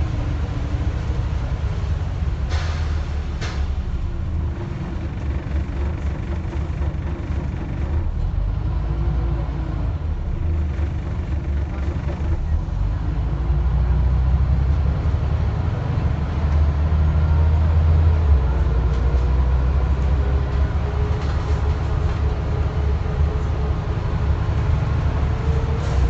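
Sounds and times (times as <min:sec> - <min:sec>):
bus engine drone: 0:00.0 - 0:26.0.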